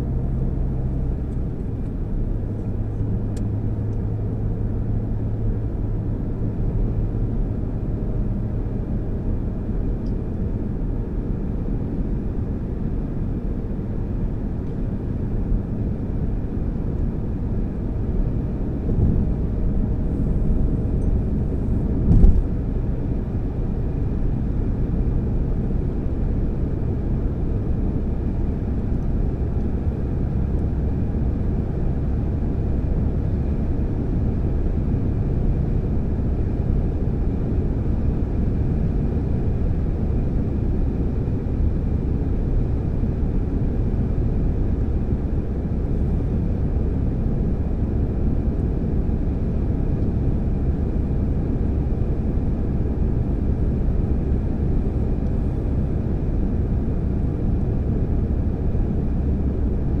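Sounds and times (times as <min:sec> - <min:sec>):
car cabin road rumble: 0:00.0 - 1:00.0.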